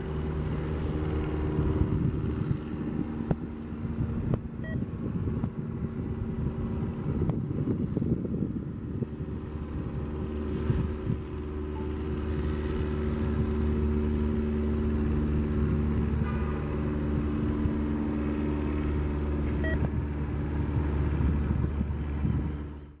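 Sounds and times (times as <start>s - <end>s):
diesel train engine drone: 0.0s - 23.0s.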